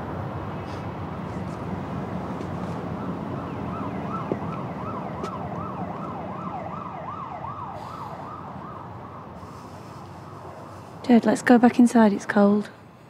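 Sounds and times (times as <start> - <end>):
siren yelping: 2.6 - 10.8.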